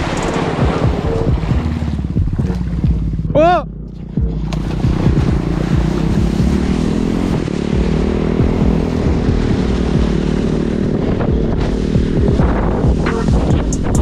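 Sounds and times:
quad bike engine running: 0:00.0 - 0:14.0
wind on microphone: 0:04.1 - 0:14.0.

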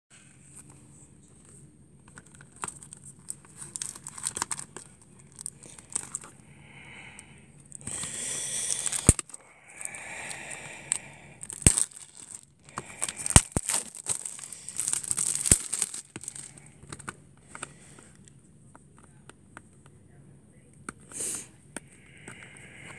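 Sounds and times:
plastic wrap crinkling and tearing: 0:02.3 - 0:06.3, 0:07.8 - 0:17.0.

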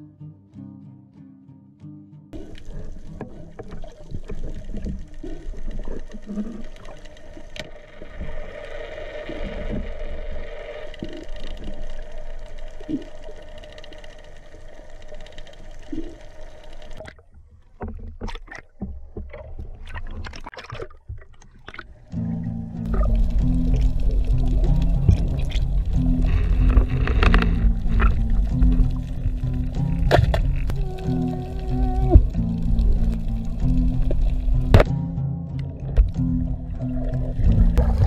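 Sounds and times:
boat motor rumbling: 0:02.4 - 0:08.1, 0:21.7 - 0:38.0
water noise: 0:02.4 - 0:34.9, 0:35.5 - 0:38.0.

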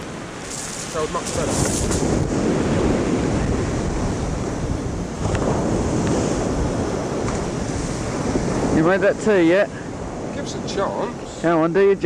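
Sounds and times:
waves breaking on shingle: 0:00.0 - 0:03.2
wind buffeting microphone: 0:00.0 - 0:12.0.

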